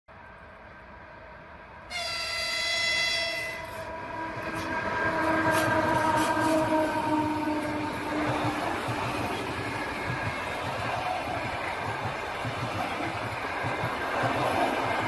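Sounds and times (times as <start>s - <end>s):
train horn blast: 1.9s - 8.1s
train wheels clattering on rails: 3.2s - 15.0s.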